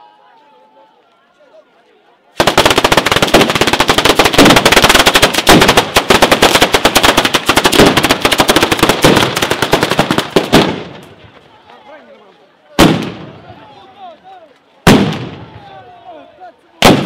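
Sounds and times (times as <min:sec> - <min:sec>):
firecrackers exploding rapidly: 0:02.4 - 0:11.2, 0:12.8 - 0:13.4, 0:14.8 - 0:15.6, 0:16.8 - 0:17.0.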